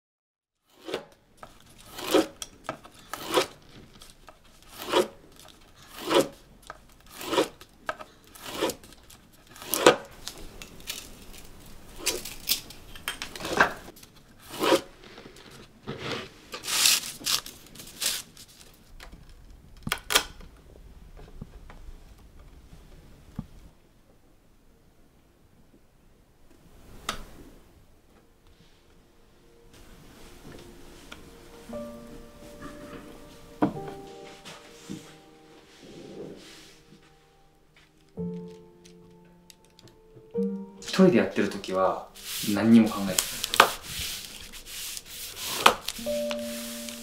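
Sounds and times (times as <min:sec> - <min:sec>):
bamboo strips splitting: 0:00.7 - 0:19.0, 0:41.5 - 0:46.3.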